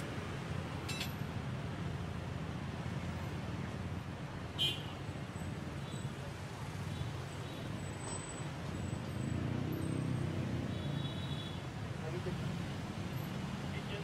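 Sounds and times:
street traffic rumble: 0:00.0 - 0:14.0
sharp clink: 0:00.9 - 0:01.2.

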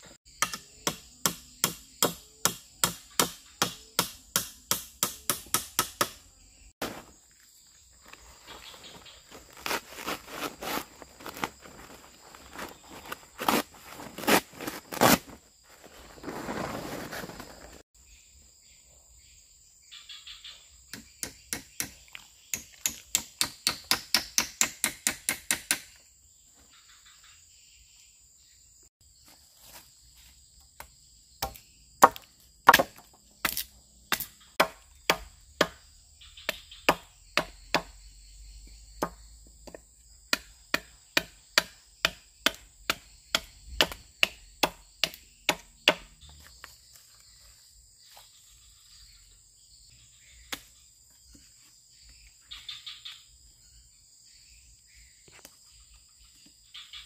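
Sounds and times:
insects buzzing: 0:00.0 - 0:57.0
wood being chopped: 0:00.3 - 0:06.2, 0:20.9 - 0:26.0, 0:30.8 - 0:35.8, 0:36.5 - 0:37.9, 0:39.0 - 0:46.1.

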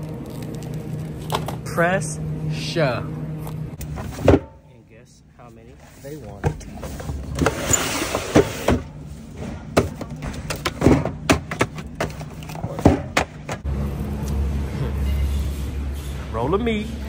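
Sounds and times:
cardboard cases thumping on conveyor: 0:09.5 - 0:13.6.

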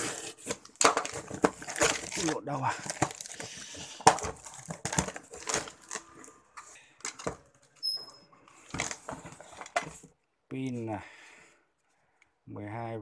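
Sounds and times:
brief high squeak: 0:07.8 - 0:08.3.

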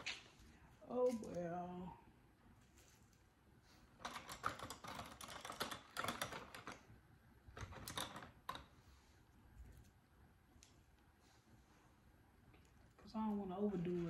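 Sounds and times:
plastic decorations clicking and rustling: 0:04.0 - 0:06.9, 0:07.5 - 0:08.7.

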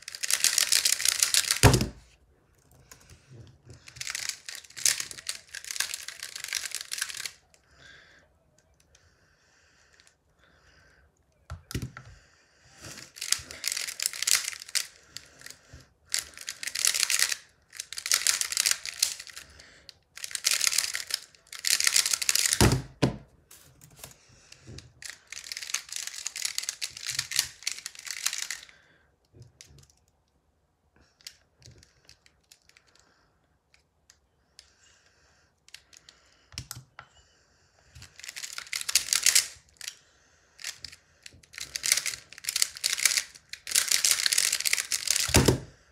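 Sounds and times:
plastic puzzle clicking: 0:00.1 - 0:01.7, 0:03.8 - 0:07.4, 0:13.0 - 0:15.5, 0:16.1 - 0:19.4, 0:20.2 - 0:23.0, 0:25.0 - 0:28.7, 0:38.0 - 0:40.0, 0:40.6 - 0:45.7.

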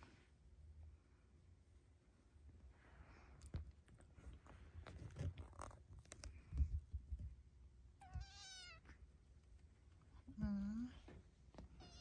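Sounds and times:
kittens suckling clicks and thumps: 0:03.3 - 0:07.5
kitten meow: 0:08.0 - 0:08.9, 0:11.8 - 0:12.0.

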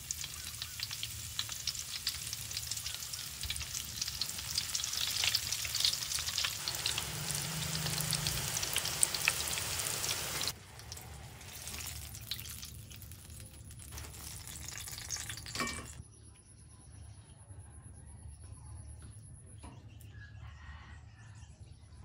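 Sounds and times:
deep-frying crackling sizzle: 0:00.0 - 0:16.0.

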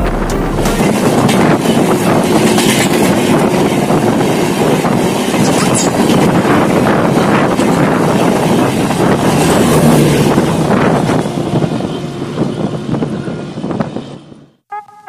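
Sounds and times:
music: 0:00.0 - 0:01.1
train wheels rushing on rails: 0:00.0 - 0:14.4.

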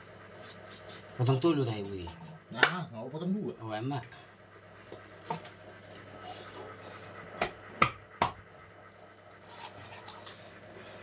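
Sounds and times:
knife chopping on cutting board: 0:07.4 - 0:08.4.

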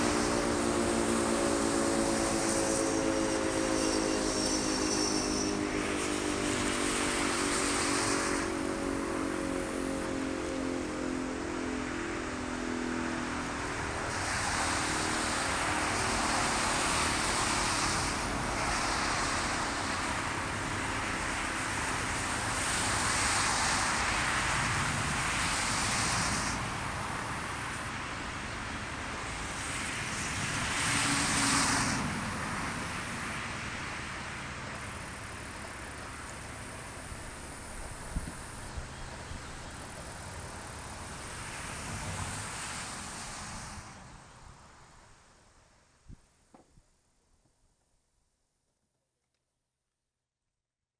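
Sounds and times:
two-tone warning siren: 0:00.0 - 0:26.0
vehicles passing: 0:00.0 - 0:46.0.

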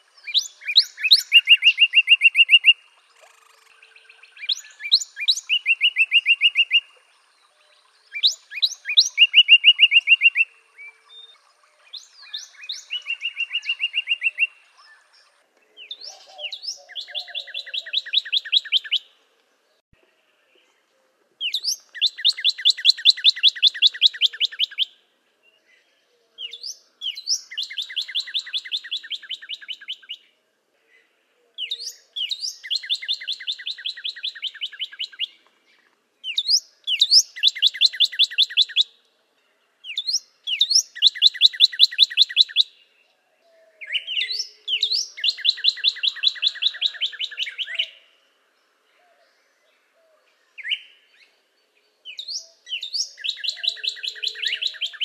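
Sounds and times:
bird singing trills: 0:00.0 - 0:19.1, 0:21.4 - 0:24.9, 0:26.4 - 0:30.2, 0:31.6 - 0:35.4, 0:36.2 - 0:38.9, 0:39.8 - 0:42.9, 0:43.8 - 0:48.1, 0:52.0 - 0:55.0.

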